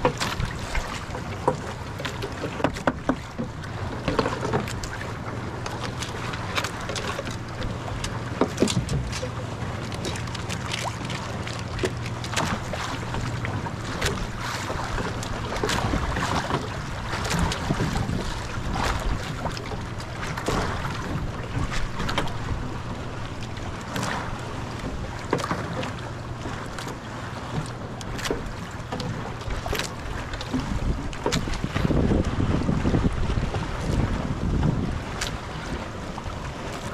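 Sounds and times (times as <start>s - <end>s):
sea water splashing against boat: 0.0s - 36.9s
wind buffeting microphone: 30.5s - 36.9s.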